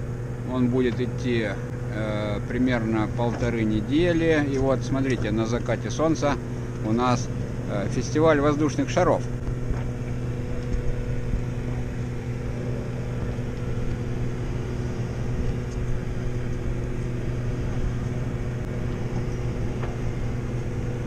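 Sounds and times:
boat engine droning: 0.0 - 21.0.

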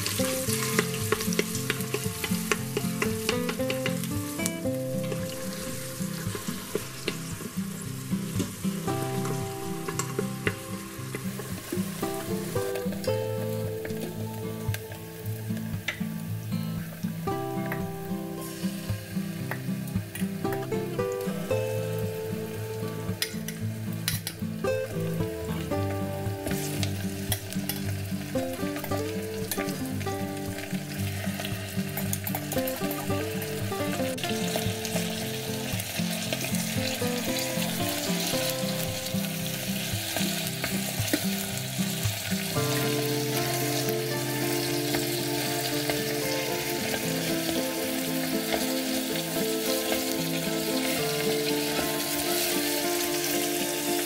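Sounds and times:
chicken sizzling in hot oil: 0.0 - 54.0.

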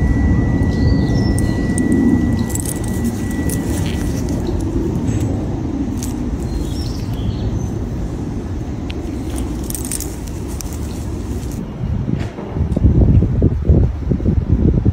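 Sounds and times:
metal chain clinking: 0.0 - 7.4, 8.9 - 11.6
low outdoor rumble: 0.0 - 14.9.

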